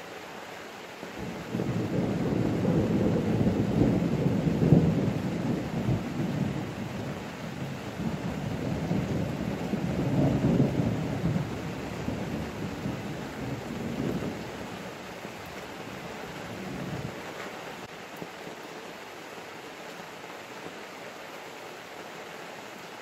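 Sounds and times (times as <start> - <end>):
steady rain: 0.0 - 23.0
thunder rumbling: 1.2 - 17.3.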